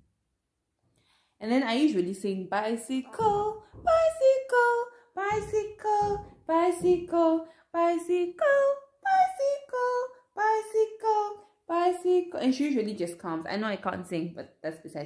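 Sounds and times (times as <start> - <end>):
woman singing unaccompanied: 1.8 - 12.8.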